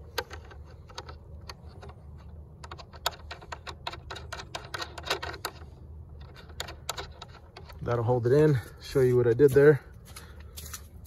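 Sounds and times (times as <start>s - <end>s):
washer and nut clicking: 0.0s - 7.9s.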